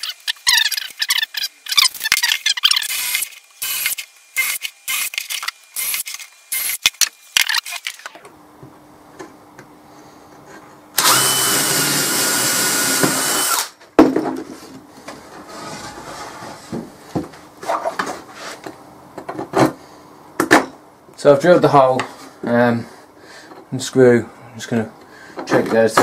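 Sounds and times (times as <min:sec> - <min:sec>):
power drill whining through wood: 0:00.0 - 0:08.3, 0:11.0 - 0:13.8.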